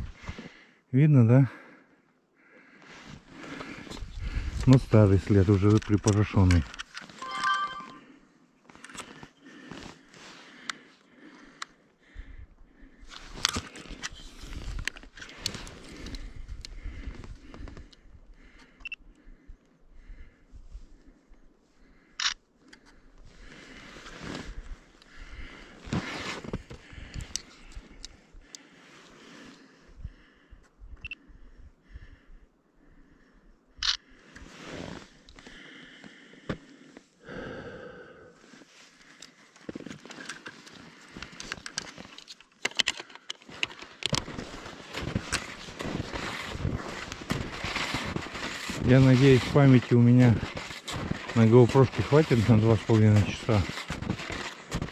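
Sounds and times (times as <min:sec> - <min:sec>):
skis sliding over snow: 0:44.2 - 0:54.9.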